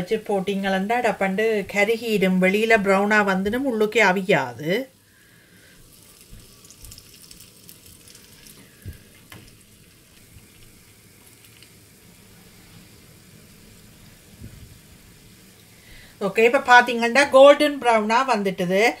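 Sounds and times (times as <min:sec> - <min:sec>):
batter sizzling in hot oil: 0:05.0 - 0:17.6.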